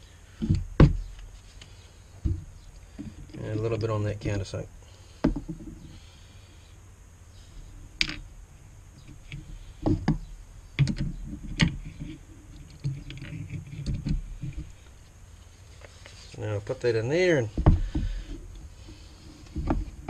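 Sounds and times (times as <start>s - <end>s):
rifle parts knocking on wooden bench: 5.2s - 5.7s, 8.0s - 8.2s, 17.5s - 18.4s.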